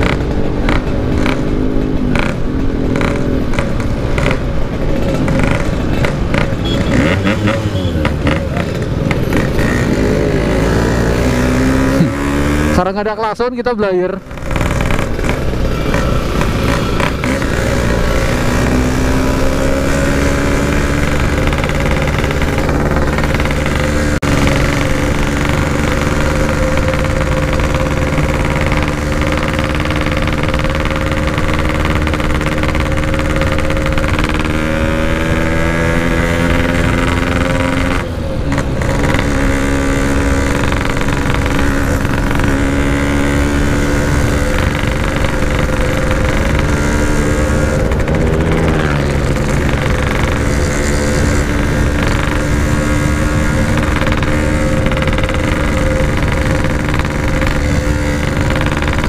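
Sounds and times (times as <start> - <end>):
two-stroke motorcycle engine running: 0.0 - 59.0
wind rumble: 14.2 - 59.0.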